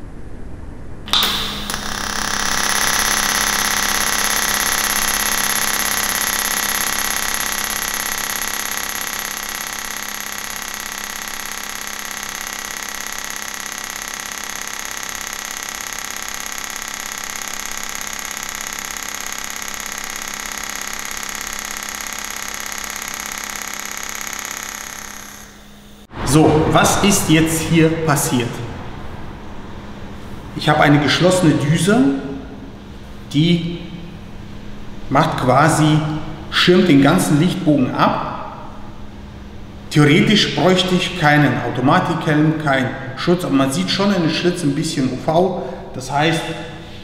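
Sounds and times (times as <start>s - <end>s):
welding arc buzzing hum: 1.0s - 47.0s
arc striking click: 1.1s - 26.1s.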